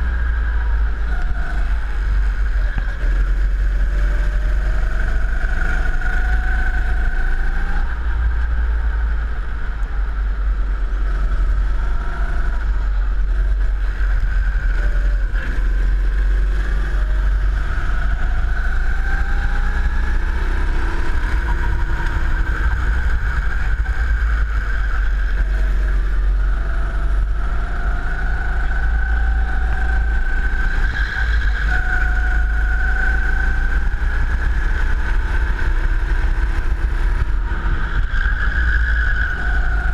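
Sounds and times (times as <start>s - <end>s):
go-kart engine revving: 0.0s - 39.9s.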